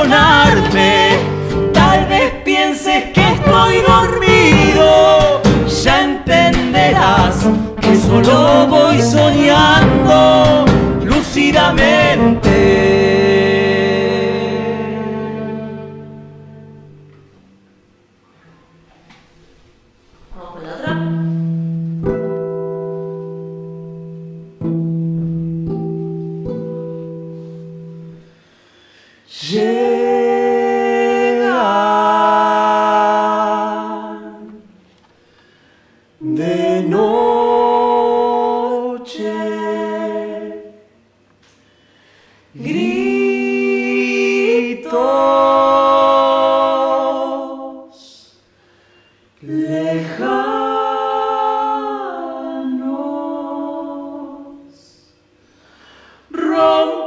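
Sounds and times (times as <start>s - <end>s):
man and woman singing wordlessly: 0.0s - 16.2s, 29.2s - 34.8s, 36.2s - 40.9s, 42.5s - 48.5s, 49.4s - 55.2s, 56.3s - 57.0s
classical guitar notes: 20.8s - 28.4s.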